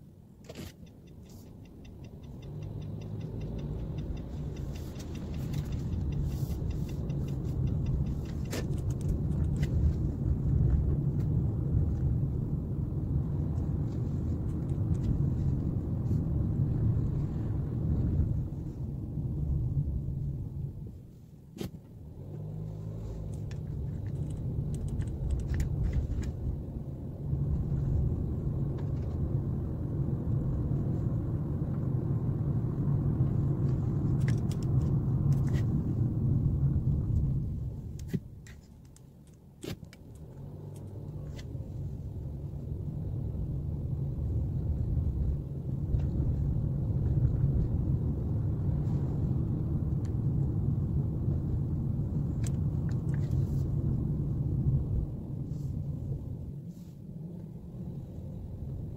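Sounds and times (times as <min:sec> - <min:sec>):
light ticks: 0:00.6 - 0:12.3, 0:23.2 - 0:26.7
car driving on wet road: 0:00.6 - 0:20.7, 0:22.1 - 0:38.2, 0:40.0 - 0:58.9.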